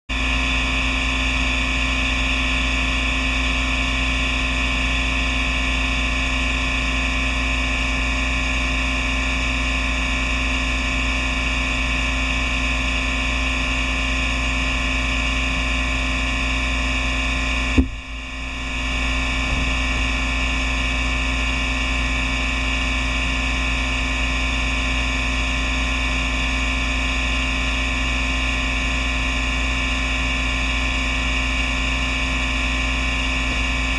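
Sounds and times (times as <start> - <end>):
misting system humming and hissing: 10.2 - 24.9.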